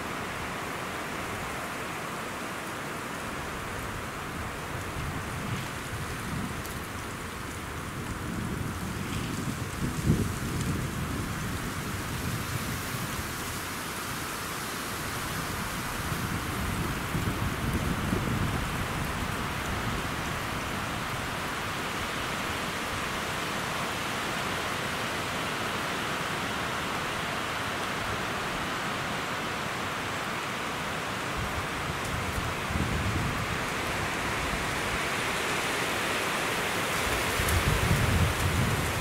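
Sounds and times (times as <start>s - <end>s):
wind rushing through pines: 0.0s - 39.0s
wind gusts rumbling on microphone: 3.3s - 14.2s, 14.9s - 23.5s, 31.3s - 39.0s.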